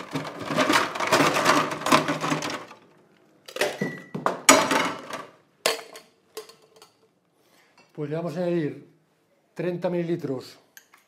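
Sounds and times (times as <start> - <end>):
ice clattering into metal shaker: 0.0 - 2.8
ice knocking and clinking on metal: 0.0 - 2.8.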